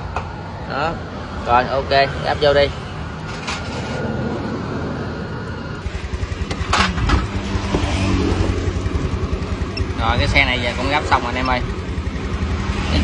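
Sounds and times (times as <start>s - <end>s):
scooter engine puttering: 5.8s - 13.0s.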